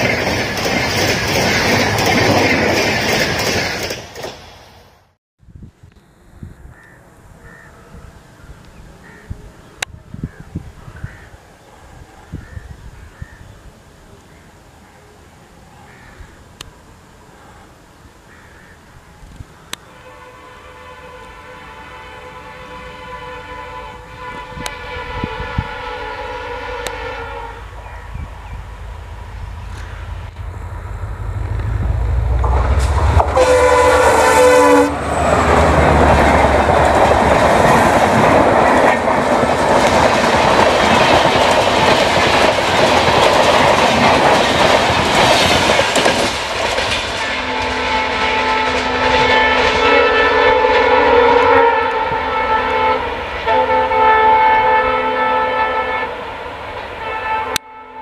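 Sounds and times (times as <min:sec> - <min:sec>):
wheels roaring on rail: 0:00.0 - 0:11.0, 0:13.6 - 0:57.8
diesel locomotive engine rumble: 0:00.0 - 0:11.3, 0:11.9 - 0:57.8
train horn: 0:19.8 - 0:28.1, 0:31.6 - 0:39.4, 0:47.1 - 0:58.0.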